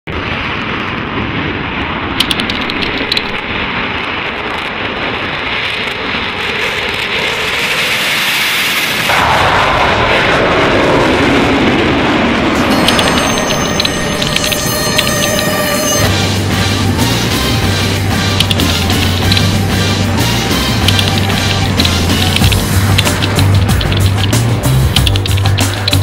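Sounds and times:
jet engines rushing: 0.1s - 26.0s
jet climbing away: 2.0s - 26.0s
short clicks: 18.4s - 19.5s, 20.8s - 26.0s.

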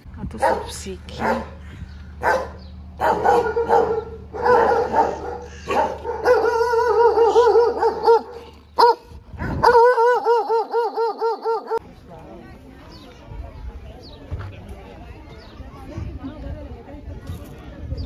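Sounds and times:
dogs barking: 0.4s - 1.6s, 2.2s - 11.8s
dog yipping: 2.2s - 11.8s.

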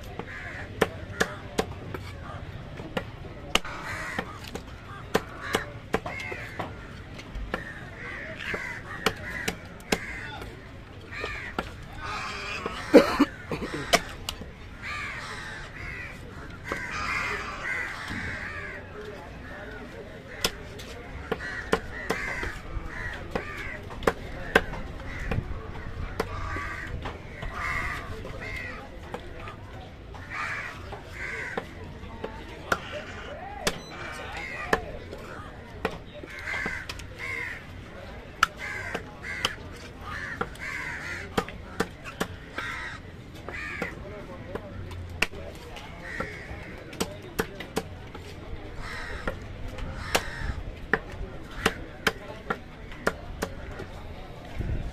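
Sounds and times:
crows cawing: 0.2s - 2.5s, 3.6s - 29.0s, 30.2s - 31.7s, 32.6s - 37.7s, 38.4s - 44.0s, 46.0s - 47.0s, 48.7s - 50.7s.

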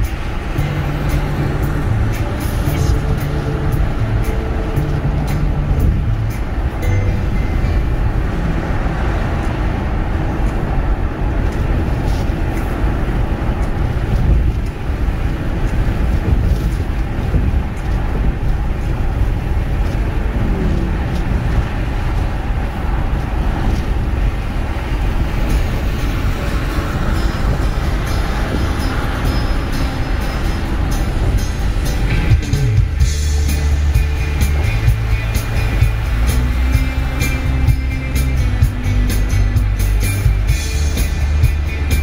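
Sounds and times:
car tyre and engine rumble: 0.0s - 42.0s.

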